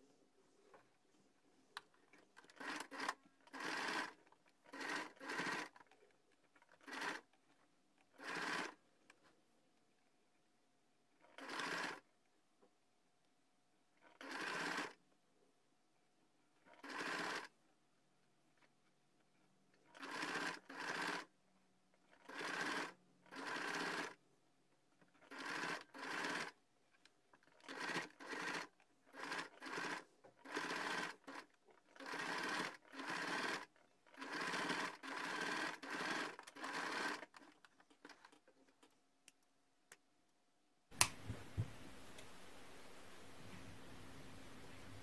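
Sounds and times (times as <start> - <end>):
sewing machine stitching: 2.0 - 8.8, 11.2 - 12.1, 14.0 - 15.0, 16.6 - 17.5, 19.7 - 21.3, 22.0 - 24.2, 25.0 - 26.6, 27.3 - 38.6
sharp click: 41.0 - 41.4.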